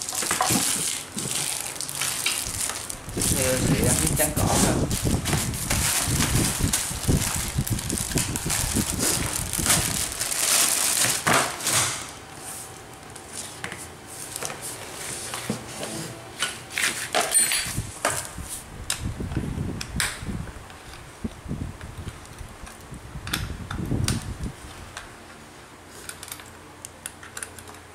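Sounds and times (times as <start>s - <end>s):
plastic bags crinkling: 0.0s - 12.2s.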